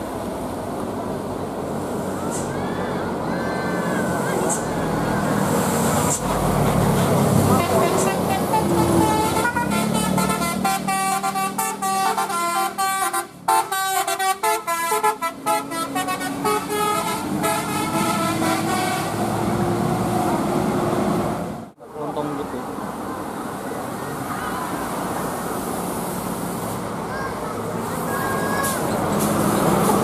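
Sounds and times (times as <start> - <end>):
bus engine passing: 0.0 - 30.0
bus horn playing a tune: 7.4 - 19.4.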